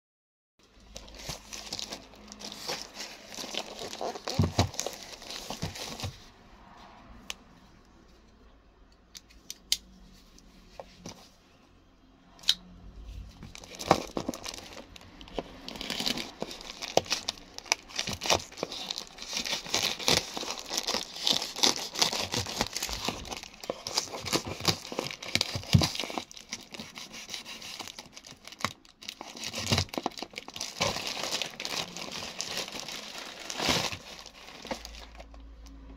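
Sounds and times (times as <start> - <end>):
plastic crinkling and tearing: 0.8 - 6.3, 13.4 - 35.6.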